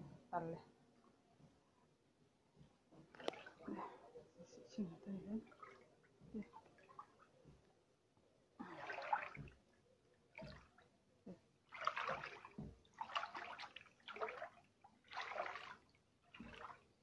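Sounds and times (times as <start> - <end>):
wading through splashing water: 3.1 - 4.0, 5.3 - 7.4, 8.6 - 9.7, 11.7 - 17.0.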